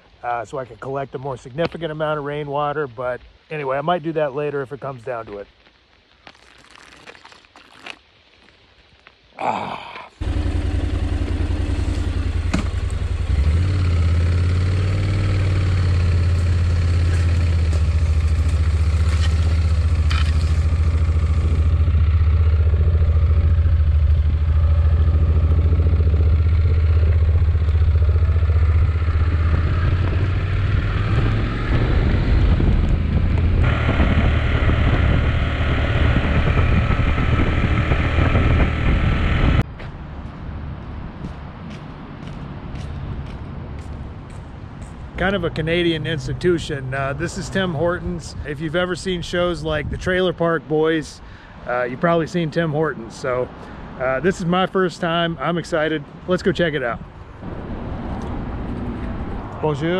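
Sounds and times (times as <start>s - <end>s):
wind and road noise: 0.0s - 59.9s
motorcycle engine running: 10.2s - 39.6s.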